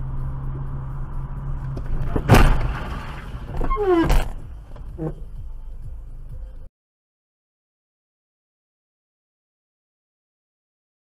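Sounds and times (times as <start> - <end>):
car engine and road hum: 0.0 - 6.7.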